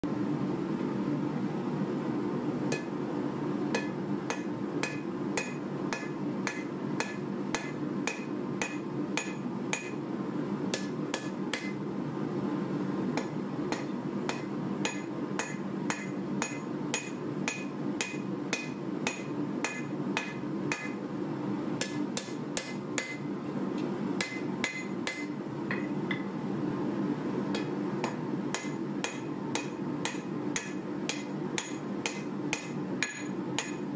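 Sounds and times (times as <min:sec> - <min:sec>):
hammer striking metal on anvil: 0:02.7 - 0:03.0, 0:03.7 - 0:10.0, 0:10.7 - 0:11.8, 0:13.2 - 0:21.0, 0:21.8 - 0:23.3, 0:24.2 - 0:26.3, 0:27.5 - 0:33.9.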